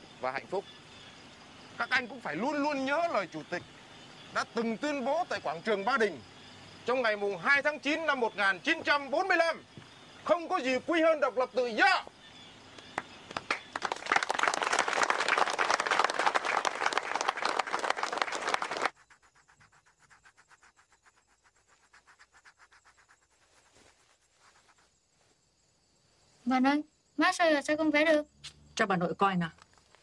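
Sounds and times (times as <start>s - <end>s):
crowd applauding: 13.0s - 18.9s.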